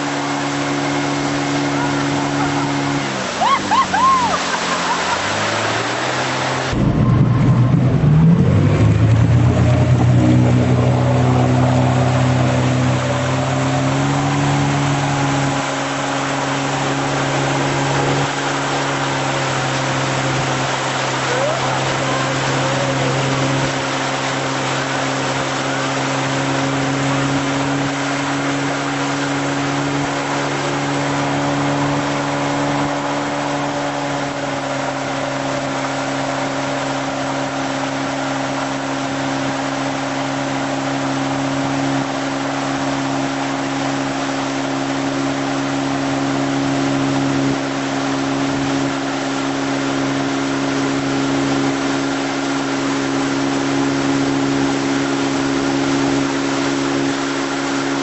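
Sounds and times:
boat engine running: 0.0s - 58.0s
rushing water hiss: 0.0s - 58.0s.

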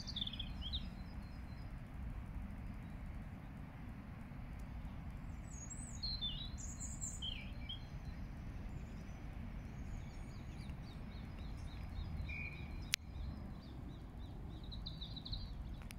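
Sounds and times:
starlings whistling and chirping: 0.0s - 1.6s, 5.5s - 8.2s
steady low rumble: 0.0s - 15.9s.

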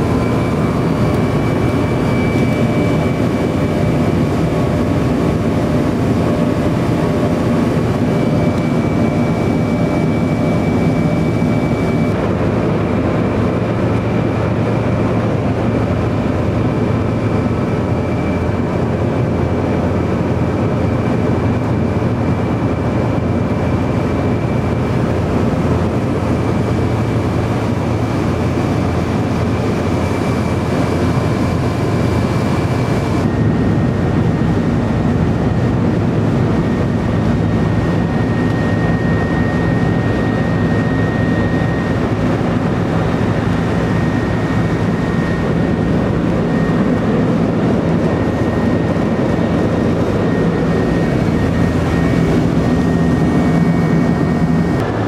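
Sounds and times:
jet engine cabin noise: 0.0s - 55.0s
thin steady whine: 0.0s - 55.0s.

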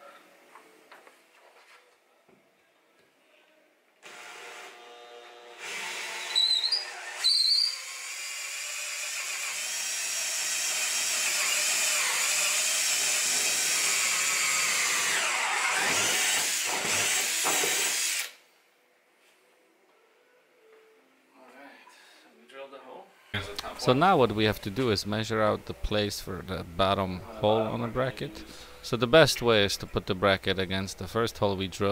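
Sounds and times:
cordless drill drilling: 4.0s - 18.4s
drill bit squealing: 5.9s - 13.1s.

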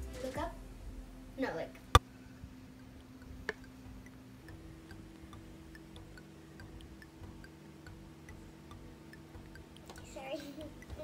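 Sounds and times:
low steady hum: 0.0s - 11.0s
faint even ticking: 2.0s - 11.0s.

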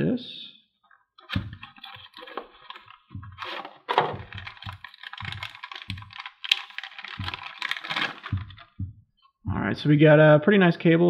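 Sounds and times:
plastic bag crinkling: 1.4s - 8.8s
cardboard box knocking on table: 3.2s - 8.8s.

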